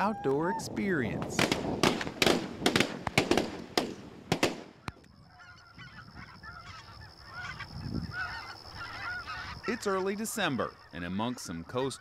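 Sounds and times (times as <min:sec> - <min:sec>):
distant geese calling: 0:00.0 - 0:12.0
shotgun shots: 0:01.4 - 0:04.8.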